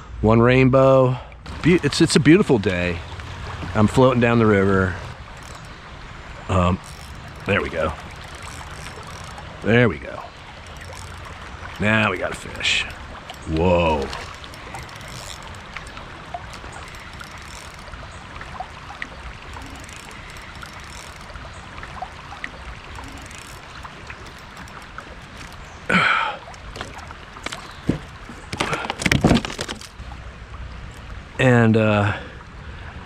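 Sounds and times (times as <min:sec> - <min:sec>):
river water rushing: 0:01.5 - 0:31.4
faint ticks: 0:05.1 - 0:05.8, 0:06.4 - 0:30.0
fish splashing and knocking: 0:05.1 - 0:30.3.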